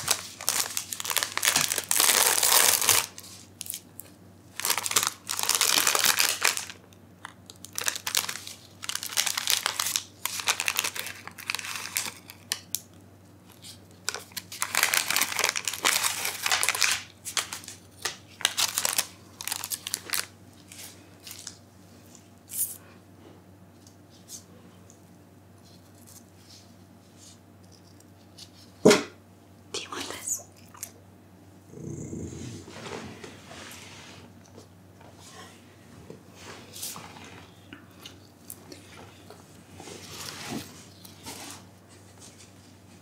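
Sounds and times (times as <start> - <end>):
wrapper tearing and crinkling: 0.0 - 4.0, 4.6 - 6.8, 7.5 - 12.8, 13.6 - 21.6.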